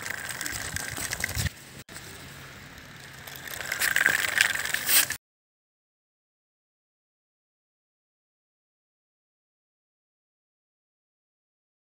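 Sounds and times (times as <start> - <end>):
small wheels rattling on ground: 0.0 - 5.2.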